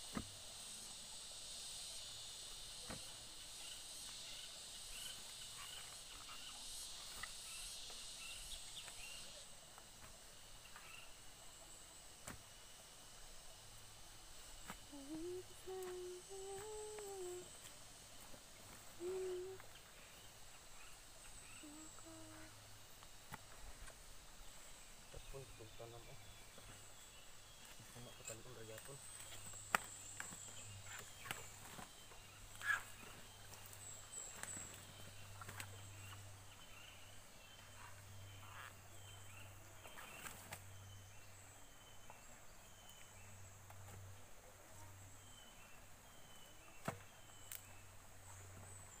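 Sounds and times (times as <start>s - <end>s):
steady low hum: 0.0s - 49.0s
person humming: 14.9s - 17.6s, 19.0s - 19.8s, 21.5s - 22.6s
faint high chirps: 19.0s - 22.7s.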